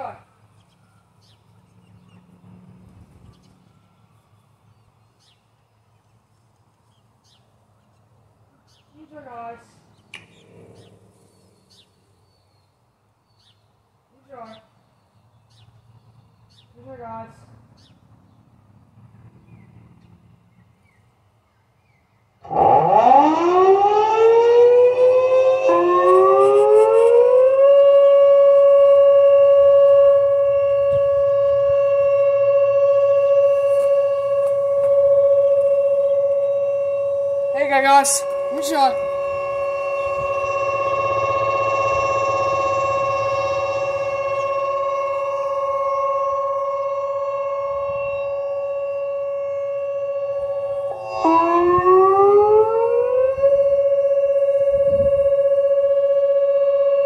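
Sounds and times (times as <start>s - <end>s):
sirens winding up to steady tone: 22.4s - 57.0s.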